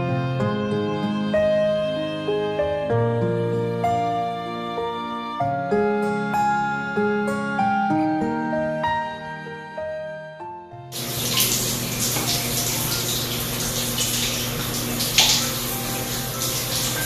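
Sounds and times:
soft melodic music: 0:00.0 - 0:17.0
shower water splashing on tiles: 0:11.0 - 0:17.0.

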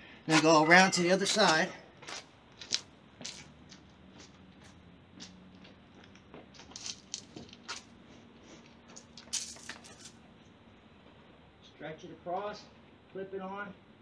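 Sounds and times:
scuffs and clicks of movement: 0:01.2 - 0:10.2.

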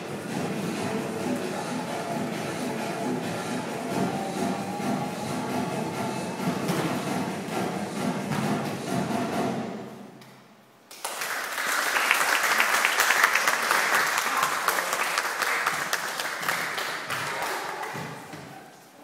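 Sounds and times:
music: 0:00.0 - 0:09.9
audience applause: 0:10.9 - 0:18.2.

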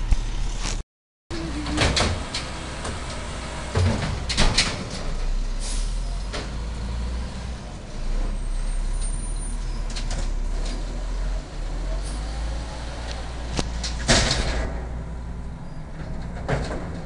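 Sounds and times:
garbage truck engine rumble: 0:00.0 - 0:17.0
metal knocks and clanks: 0:13.7 - 0:15.0, 0:15.9 - 0:17.0.

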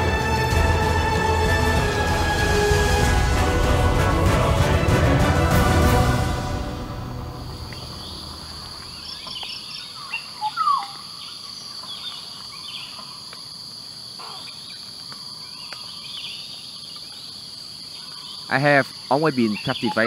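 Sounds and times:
insect chorus: 0:06.5 - 0:20.0
bird calls: 0:07.6 - 0:13.4, 0:14.2 - 0:20.0.

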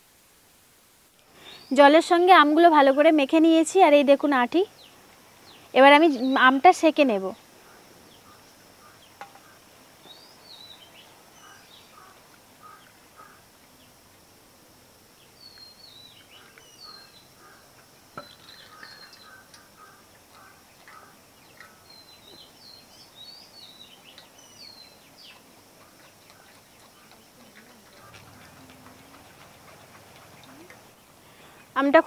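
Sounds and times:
faint steady outdoor hiss: 0:00.0 - 0:32.0
birds chirping and calling: 0:07.6 - 0:13.4, 0:15.4 - 0:31.6.

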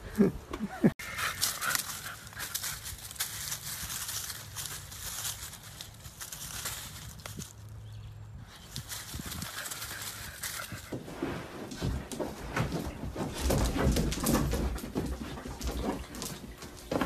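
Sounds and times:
bed rustling and knocking: 0:10.6 - 0:17.0.

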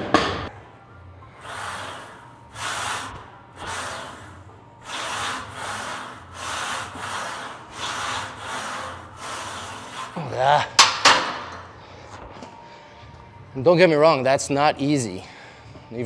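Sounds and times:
man breathing hard: 0:15.2 - 0:15.9.

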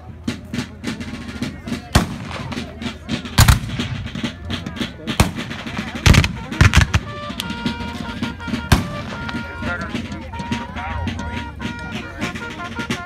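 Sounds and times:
crowd murmuring: 0:00.0 - 0:13.0
black-powder gunshots: 0:01.9 - 0:02.7, 0:03.4 - 0:04.2, 0:05.1 - 0:07.4, 0:08.7 - 0:09.1.

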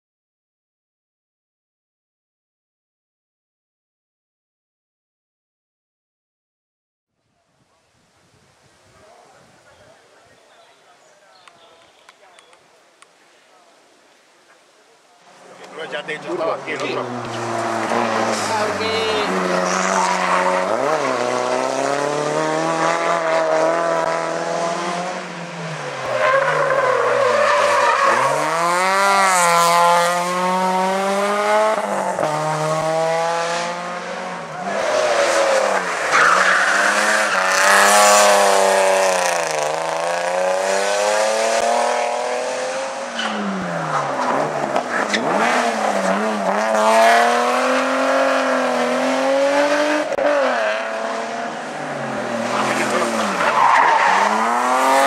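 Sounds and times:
race car engines revving: 0:15.3 - 0:55.0
tyre squeal: 0:43.1 - 0:44.2.

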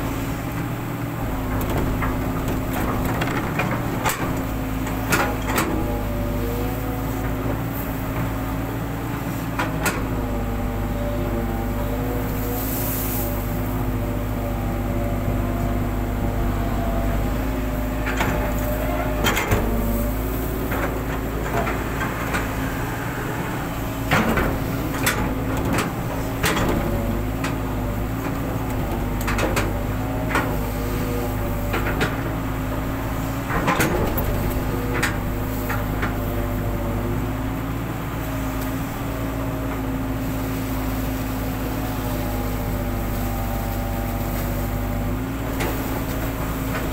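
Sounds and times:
excavator diesel engine running: 0:00.0 - 0:46.9
excavator bucket knocks and clanks: 0:01.2 - 0:10.4, 0:13.7 - 0:22.7, 0:23.9 - 0:37.1.

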